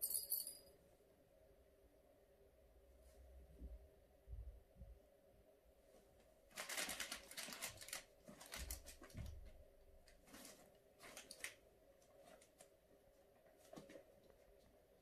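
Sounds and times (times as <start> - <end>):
fabric tunnel rustling: 6.0 - 12.6.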